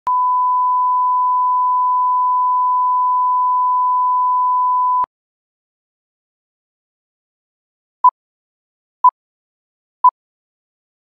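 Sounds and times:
steady test tone beep: 0.1 - 5.1.

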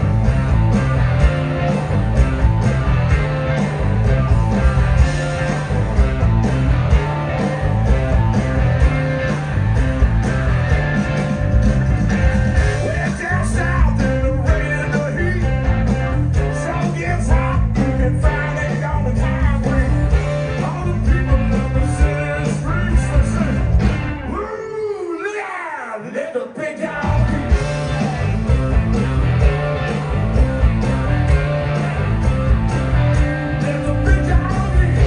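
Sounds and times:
electric guitars: 0.0 - 24.4, 26.9 - 35.0
drum kit: 0.0 - 24.5, 26.9 - 35.0
bass guitar: 0.0 - 24.6, 27.0 - 35.0.

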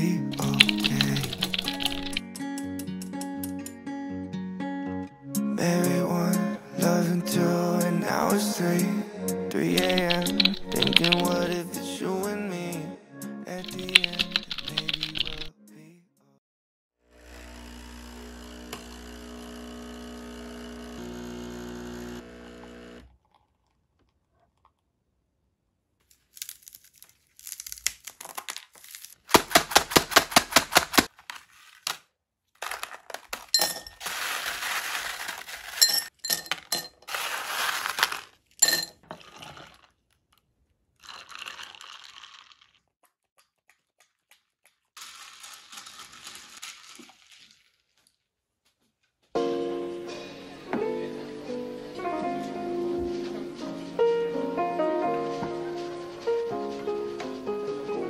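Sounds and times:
ice cubes cracking from tray: 0.4 - 2.2, 9.8 - 11.4, 13.6 - 15.4, 26.1 - 40.4, 41.0 - 42.8, 45.0 - 48.2
ice stirred in a glass: 0.4 - 2.2, 9.8 - 11.6, 13.6 - 15.5, 38.1 - 39.9, 41.0 - 42.8, 45.0 - 47.7
coffee machine humming: 17.2 - 23.1.

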